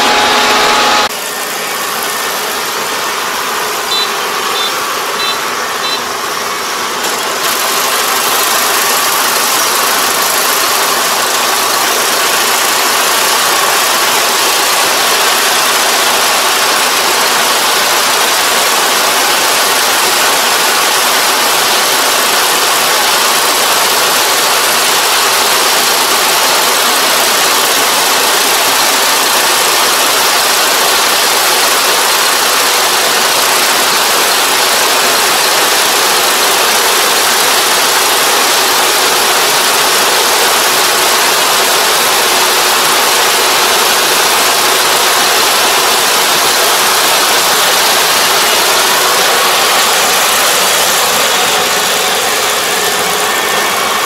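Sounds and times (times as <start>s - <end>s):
combine harvester running: 0.0s - 54.0s
faint high beeps: 3.9s - 6.1s.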